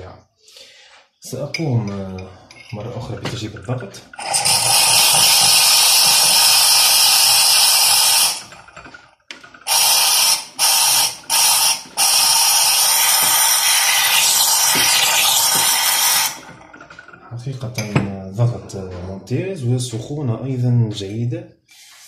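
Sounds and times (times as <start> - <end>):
steam wand hissing: 4.2 - 8.6, 9.7 - 16.5.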